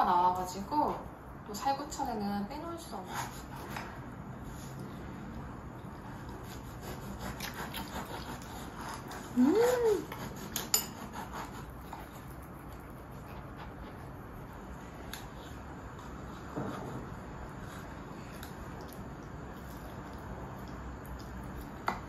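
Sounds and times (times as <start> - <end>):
cutlery scraping on plate: 10.1 - 11.5.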